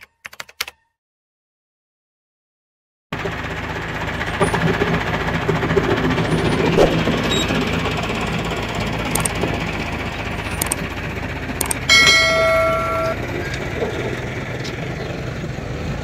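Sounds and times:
tractor diesel engine running: 3.2 - 16.0
short clicks and rattles: 9.0 - 9.6, 10.4 - 11.0, 11.6 - 11.9.

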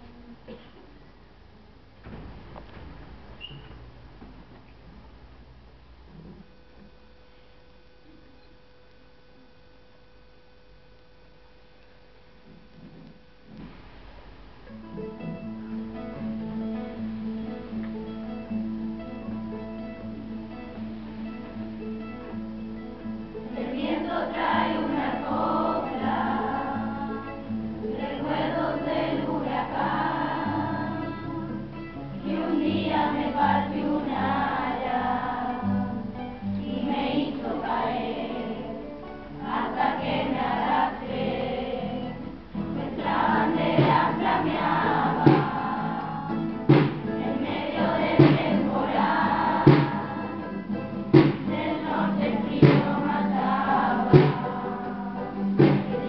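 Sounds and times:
strummed acoustic guitar: 14.7 - 56.0
children's choir singing: 23.4 - 56.0
drum beating steady pulse: 43.0 - 56.0.

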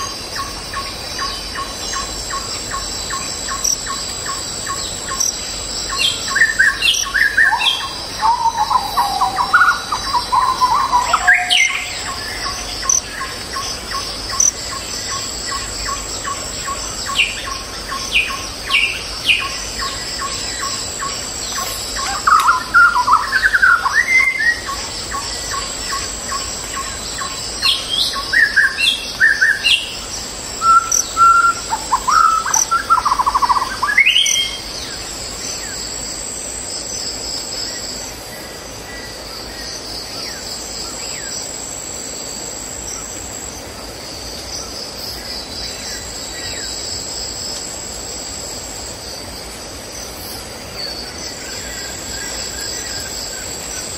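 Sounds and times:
high insect drone: 0.0 - 53.9
birds chirping and whistling: 6.0 - 13.3, 13.9 - 30.0, 30.6 - 34.7.

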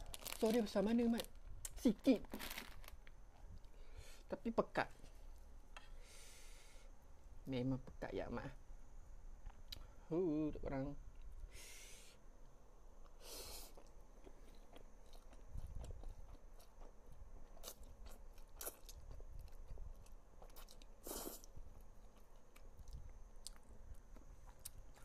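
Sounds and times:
person chewing noodles: 13.0 - 25.0.

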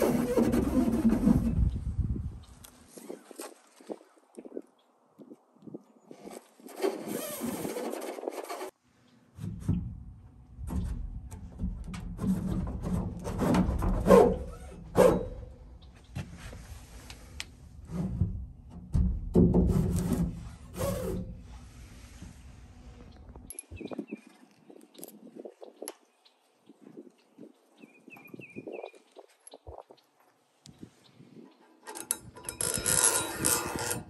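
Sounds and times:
threaded rod scraping wood: 0.0 - 1.7, 6.1 - 8.8, 31.8 - 34.0.

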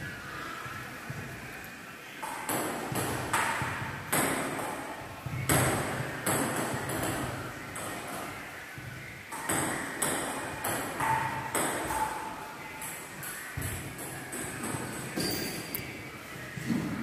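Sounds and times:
ping pong ball hits and bounces: 2.2 - 8.3, 9.3 - 15.7.

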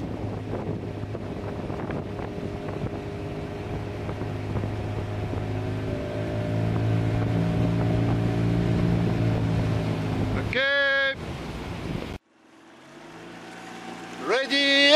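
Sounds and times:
motorboat engine drone: 0.0 - 10.6, 11.3 - 14.9
wind on microphone: 0.0 - 10.6, 11.2 - 12.2.

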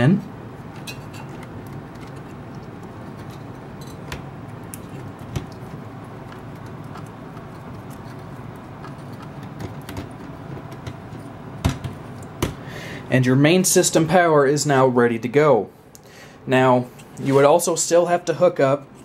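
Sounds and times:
low steady hum: 0.0 - 19.0
cables being handled: 0.5 - 12.6.

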